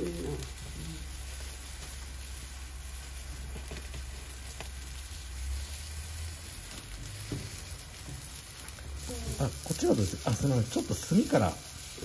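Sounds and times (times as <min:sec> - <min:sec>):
skewers sizzling on a grill: 0:00.0 - 0:12.0.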